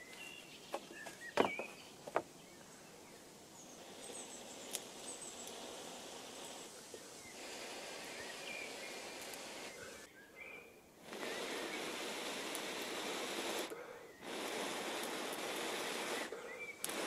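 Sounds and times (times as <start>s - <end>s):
faint bird chirps: 0.0s - 12.0s, 15.8s - 16.9s
breath blowing on ember: 3.5s - 10.1s, 11.0s - 17.0s.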